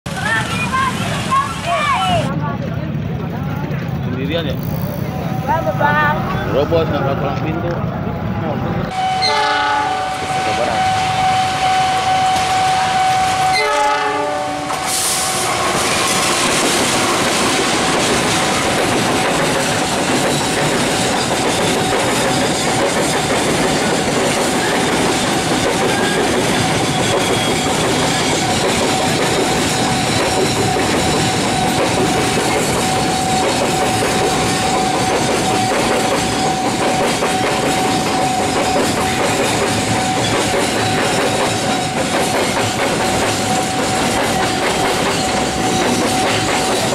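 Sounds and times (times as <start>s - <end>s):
locomotive horn: 8.9s - 15.4s
train wheels clattering over rail joints: 14.7s - 46.9s.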